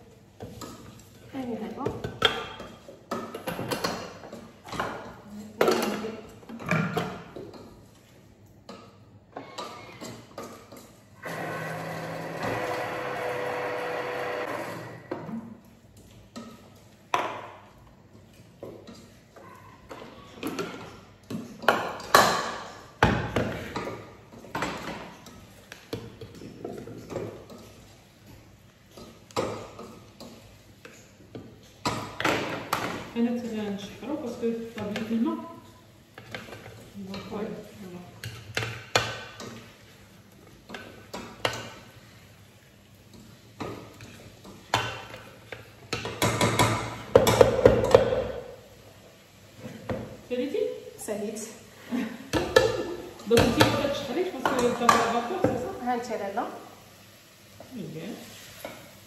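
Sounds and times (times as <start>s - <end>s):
wooden spoon stirring in steel pot: 0.0s - 59.0s.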